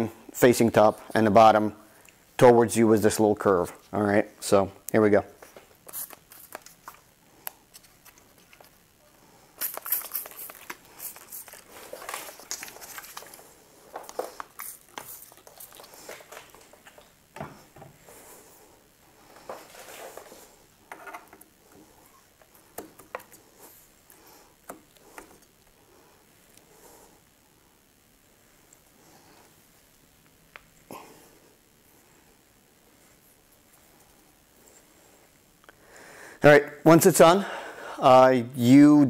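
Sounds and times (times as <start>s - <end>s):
spray bottle spritzing: 5.8s - 6.9s, 9.6s - 11.8s.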